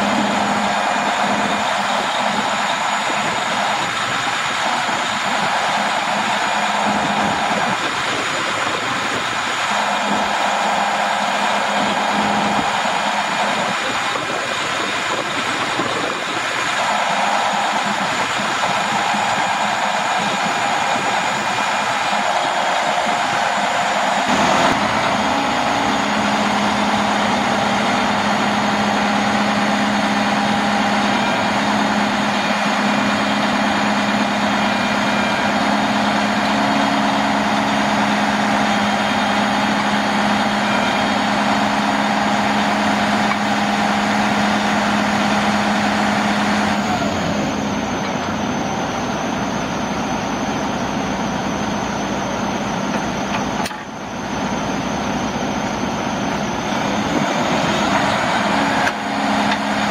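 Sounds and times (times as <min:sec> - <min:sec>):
diesel engine running: 0:00.0 - 0:59.9
hydraulic crane hum and whine: 0:00.0 - 0:59.9.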